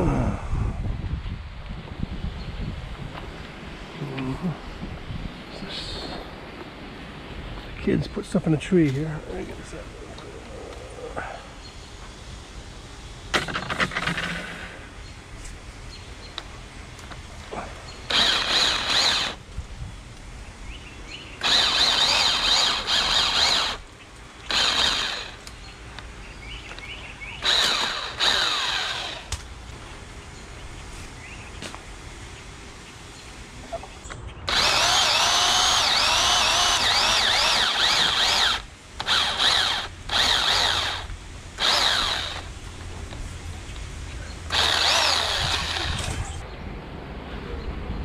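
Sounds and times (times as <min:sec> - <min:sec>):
electric pole saw whine: 0:18.1 - 0:19.4, 0:21.4 - 0:25.6, 0:26.7 - 0:29.6, 0:34.5 - 0:43.1, 0:44.5 - 0:46.4.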